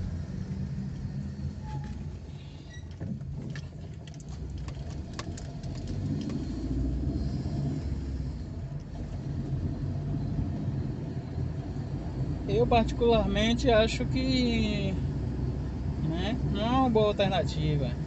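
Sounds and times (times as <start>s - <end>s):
car engine and road noise: 0.0s - 18.0s
light clicks and rattles: 2.7s - 6.5s.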